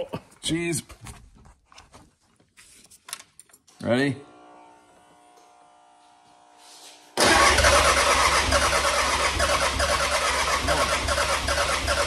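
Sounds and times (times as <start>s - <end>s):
diesel engine starting and running: 7.2s - 12.0s.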